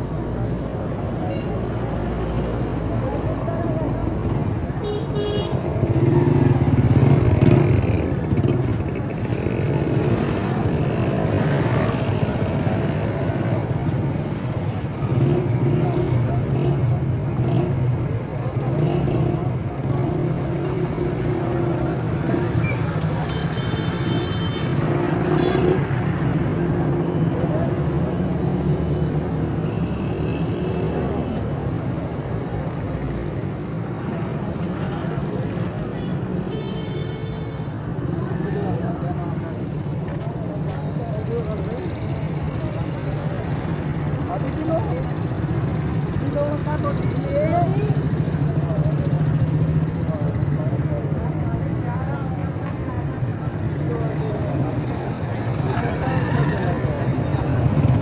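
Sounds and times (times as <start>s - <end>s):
motorcycles passing: 0.0s - 58.0s
traffic hum: 0.0s - 58.0s.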